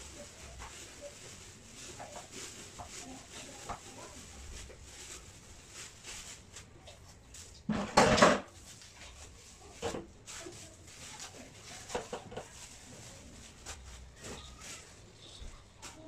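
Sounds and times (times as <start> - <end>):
bowl clatter and rustle: 0.0 - 16.0.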